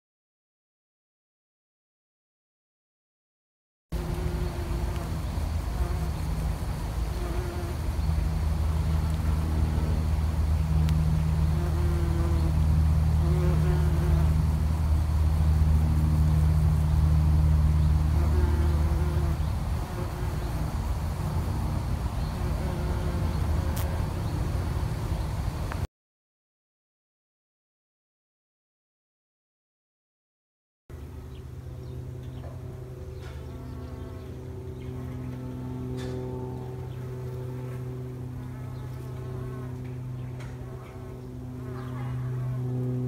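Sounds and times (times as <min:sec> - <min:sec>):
single bees buzzing past: 0:04.0 - 0:15.0, 0:16.2 - 0:25.6
bees humming: 0:04.0 - 0:25.8, 0:31.4 - 0:42.9.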